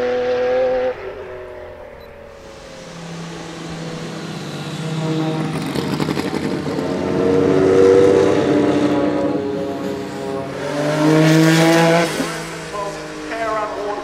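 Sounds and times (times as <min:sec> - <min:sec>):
race car engine accelerating hard: 0:00.0 - 0:14.0.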